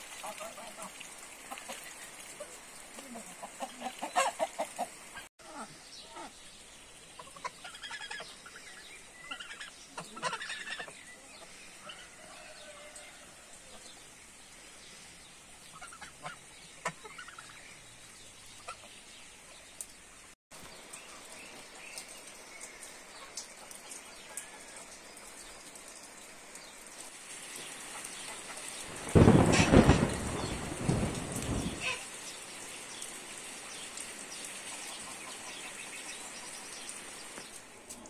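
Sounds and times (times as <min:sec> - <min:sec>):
rain hissing: 0:00.0 - 0:07.6, 0:08.2 - 0:16.9, 0:17.6 - 0:38.0
chickens clucking: 0:01.5 - 0:05.3, 0:07.2 - 0:08.6, 0:09.2 - 0:12.1
geese honking: 0:03.4 - 0:04.9, 0:09.2 - 0:10.9.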